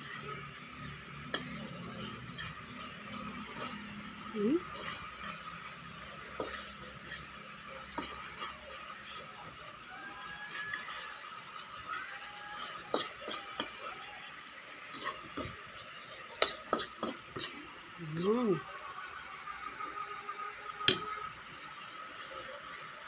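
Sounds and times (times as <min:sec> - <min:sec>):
sauce bubbling in a pan: 0:00.0 - 0:23.0
spatula scraping a metal pan: 0:01.2 - 0:09.7, 0:10.5 - 0:11.1, 0:12.0 - 0:13.7, 0:14.9 - 0:15.6, 0:16.2 - 0:17.6.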